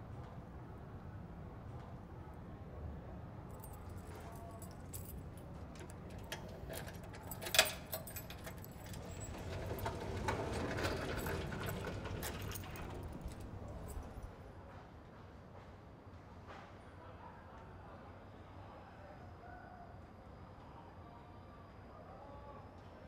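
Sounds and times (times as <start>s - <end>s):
keys jangling against door lock: 3.5s - 14.3s
small metallic clicks and rattles: 3.6s - 14.3s.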